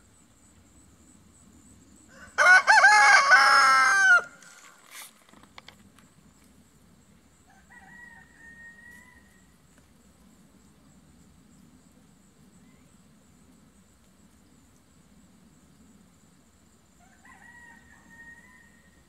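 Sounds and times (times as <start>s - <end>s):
rooster crowing: 2.1s - 4.4s, 7.5s - 9.5s, 17.0s - 19.0s.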